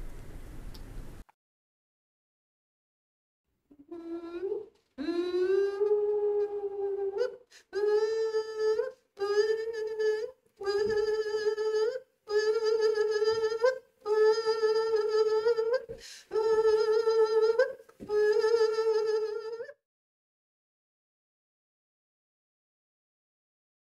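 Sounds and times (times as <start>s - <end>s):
woman singing a steady note: 3.8s - 19.8s.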